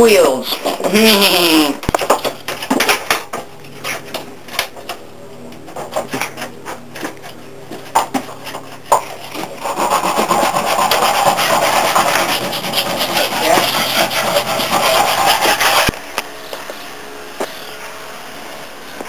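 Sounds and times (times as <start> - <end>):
abrasive scraping on wood: 9.0 - 16.0.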